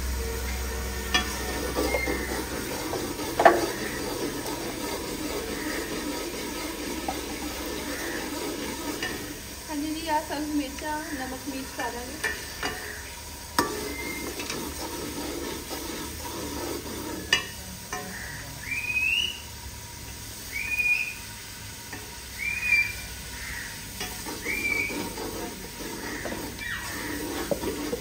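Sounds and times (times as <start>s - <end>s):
rising whistle: 0.0s - 2.5s, 13.7s - 14.3s, 18.6s - 19.5s, 20.5s - 21.3s, 22.4s - 23.1s, 24.4s - 25.1s
food sizzling in pot: 0.0s - 28.0s
ladle scraping metal pot: 0.9s - 10.3s, 11.0s - 18.4s, 21.9s - 28.0s.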